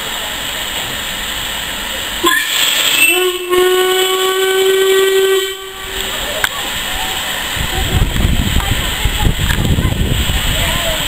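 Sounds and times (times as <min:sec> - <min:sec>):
steam hissing: 0:00.0 - 0:11.0
steam locomotive whistle: 0:02.2 - 0:06.3.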